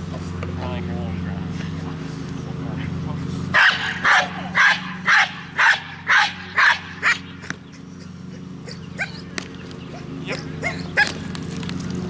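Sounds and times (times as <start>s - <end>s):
dog barking: 3.6s - 7.3s, 8.6s - 9.3s, 10.3s - 11.2s
dog whining: 7.0s - 11.3s.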